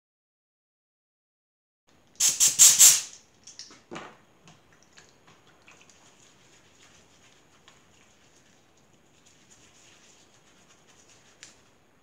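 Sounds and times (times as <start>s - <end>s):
compressed air blasts: 2.2s - 3.2s.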